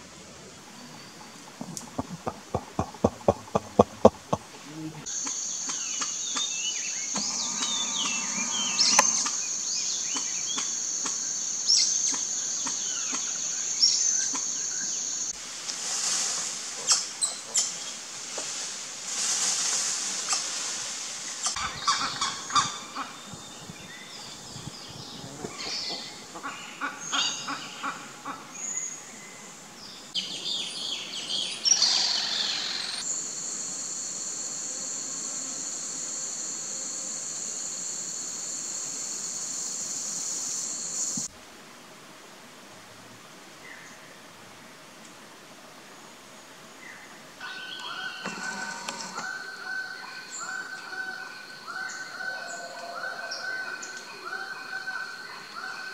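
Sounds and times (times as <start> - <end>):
sharp chirps and clicks: 1.2 - 4.6
high-pitched insect buzz: 1.8 - 10.0, 31.9 - 41.3
rustling: 18.1 - 21.6.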